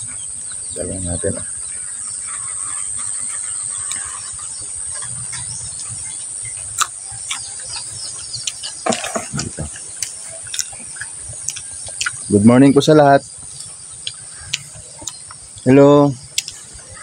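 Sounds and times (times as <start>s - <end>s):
insects buzzing drone: 0.0s - 17.0s
crunch of pod being bitten: 6.8s - 12.3s, 13.6s - 15.4s, 16.4s - 16.6s
cluster of clicks: 16.3s - 16.7s.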